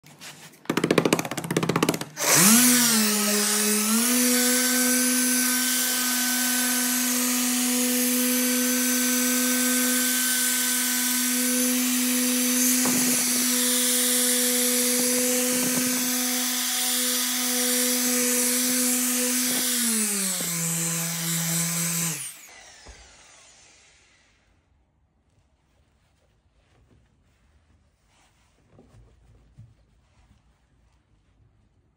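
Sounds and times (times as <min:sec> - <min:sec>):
machine polisher whining: 0:02.2 - 0:24.3.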